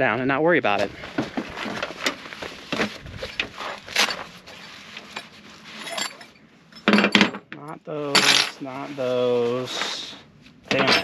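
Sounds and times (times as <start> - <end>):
fabric bag rustling: 0.8 - 6.3.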